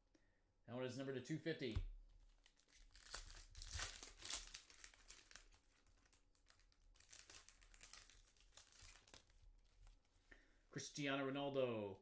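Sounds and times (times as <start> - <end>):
foil wrapper tearing and crinkling: 2.4 - 9.4.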